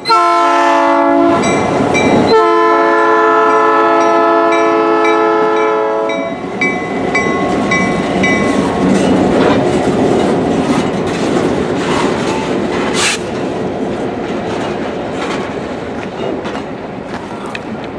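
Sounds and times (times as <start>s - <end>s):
locomotive horn: 0.0s - 1.6s, 2.2s - 6.4s
locomotive bell ringing: 1.3s - 2.6s, 3.5s - 9.4s
train wheels clacking on rails: 6.1s - 17.9s.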